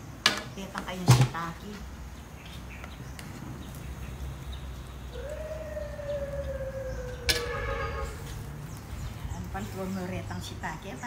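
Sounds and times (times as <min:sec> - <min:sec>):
long wailing tone: 0:05.2 - 0:08.4.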